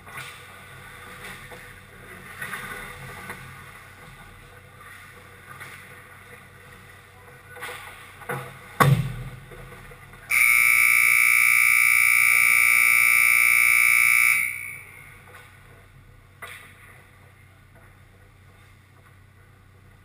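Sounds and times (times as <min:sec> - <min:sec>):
harsh high-pitched buzzer: 0:10.3 - 0:15.1.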